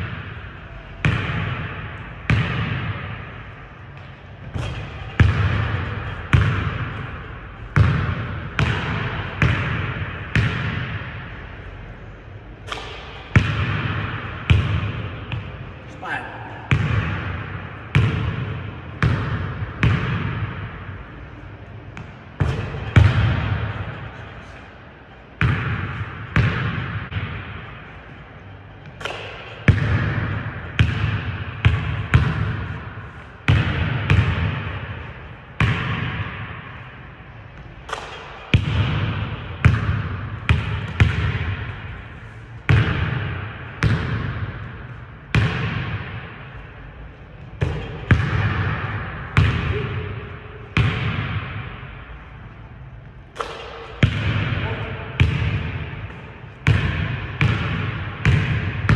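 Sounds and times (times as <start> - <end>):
basketball bouncing on hardwood floor: 56.7 - 58.9.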